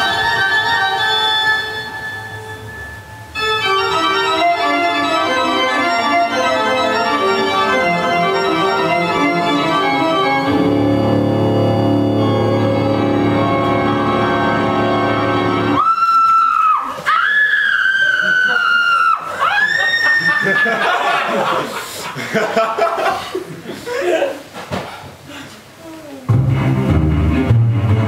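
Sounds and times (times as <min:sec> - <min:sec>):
organ music: 0:00.0 - 0:15.8.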